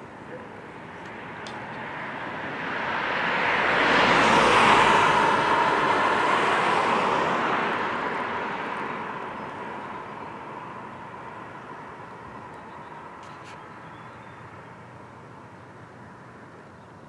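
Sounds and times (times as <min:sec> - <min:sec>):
car passing by: 0:01.1 - 0:11.6.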